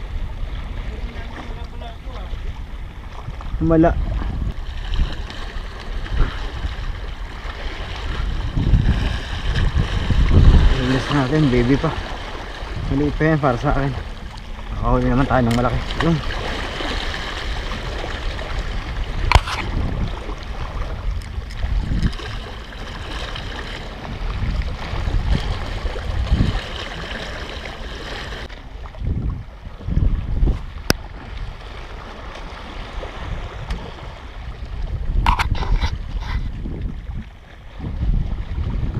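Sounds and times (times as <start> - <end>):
wind on microphone: 0.0 - 38.9
waves splashing on rocks: 4.8 - 20.2.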